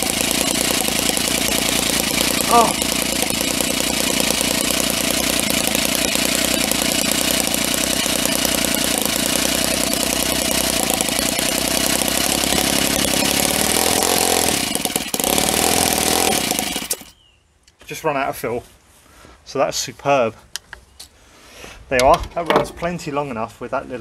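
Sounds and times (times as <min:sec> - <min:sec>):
model engine running fast: 0:00.0 - 0:17.1.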